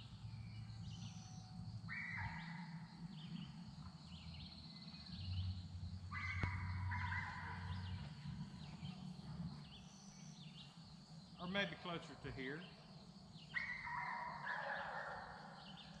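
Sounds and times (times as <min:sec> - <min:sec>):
birds chirping: 0:00.0 - 0:16.0
faint low hum: 0:00.0 - 0:16.0
animal calls: 0:01.9 - 0:02.9, 0:06.1 - 0:09.1, 0:13.4 - 0:16.0.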